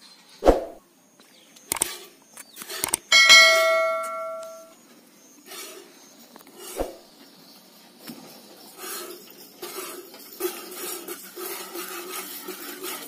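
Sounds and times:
steel pot clanging: 3.1 - 4.7
milk spurting into pot: 8.8 - 13.0.

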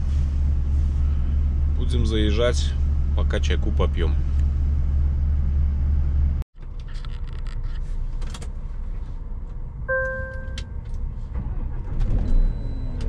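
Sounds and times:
diesel truck idling: 0.0 - 6.4
low rumble: 0.0 - 6.4
short beep: 9.9 - 10.7.

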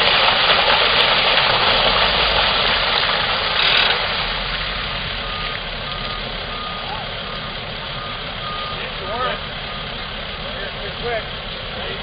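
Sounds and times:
water splashing onto concrete: 0.0 - 6.5
truck engine idling: 1.5 - 12.0.

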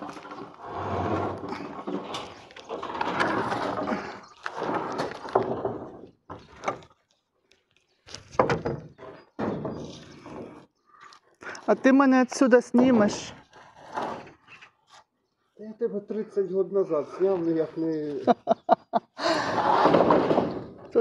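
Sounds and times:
wooden boards scraping: 0.0 - 6.9, 8.1 - 10.7, 12.7 - 15.0, 19.2 - 21.0
knocks and bumps: 8.2 - 10.6, 19.5 - 21.0.

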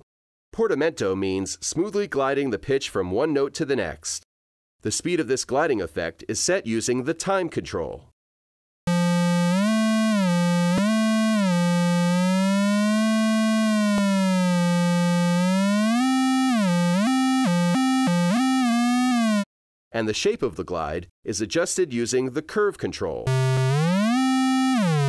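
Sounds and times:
gliding sawtooth synth tone: 8.9 - 19.4.

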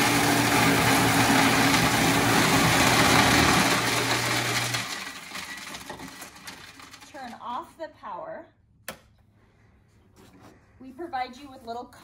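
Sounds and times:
ice shaving machine grinding: 0.0 - 7.4.

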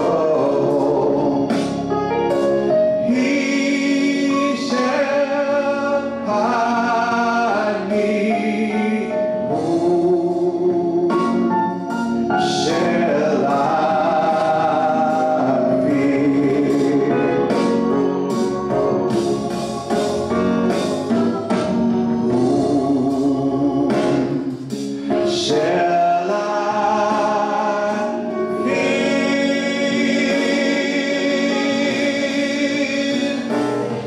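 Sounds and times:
man singing gospel song: 0.0 - 1.9, 3.0 - 21.2, 22.0 - 34.0.

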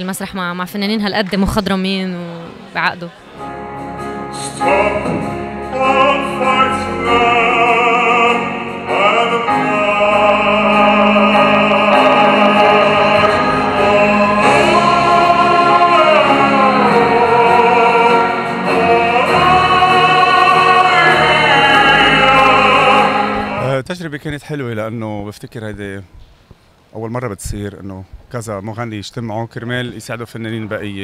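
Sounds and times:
man singing slow song: 4.3 - 23.7
live band playing: 10.8 - 23.7.

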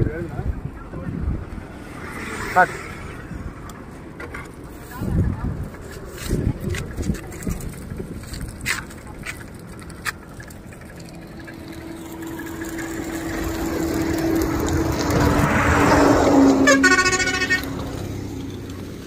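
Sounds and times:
vehicle passing on highway: 0.0 - 19.0
vehicle horn honk: 16.6 - 17.9.

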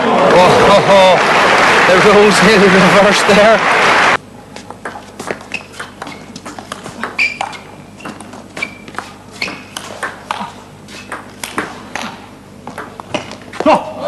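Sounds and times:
ball clicking off rackets: 4.7 - 13.6.

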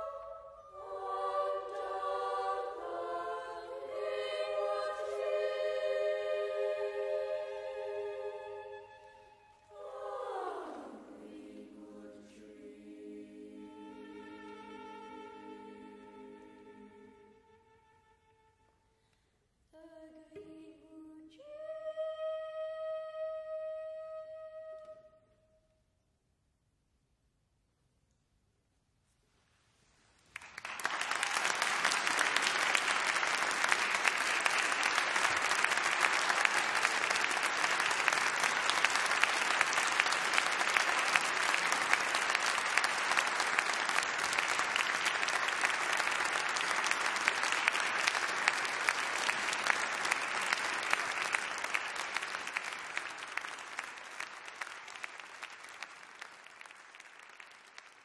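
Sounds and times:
audience applauding: 30.3 - 58.0.

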